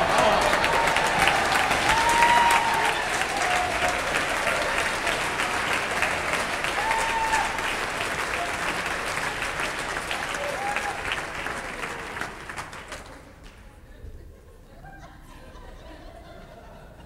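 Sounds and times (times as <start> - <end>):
congregation clapping: 0.0 - 13.8.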